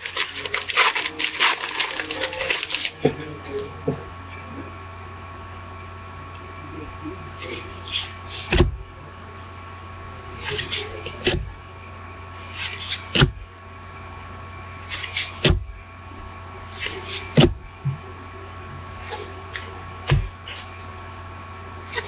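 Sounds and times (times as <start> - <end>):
papery card rustle: 0.0 - 3.0
low electrical hum: 0.0 - 22.0.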